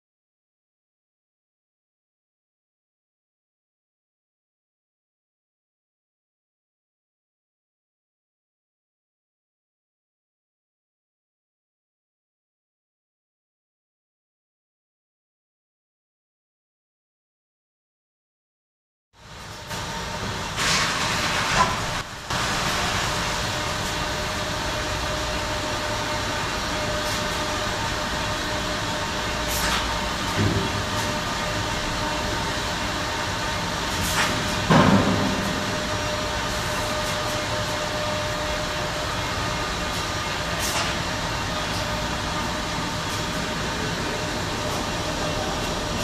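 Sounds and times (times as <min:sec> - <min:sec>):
constant machine whine: 0:19.2 - 0:46.0
production line machinery running: 0:19.2 - 0:46.0
machinery clunks: 0:30.3 - 0:31.1, 0:34.2 - 0:36.4.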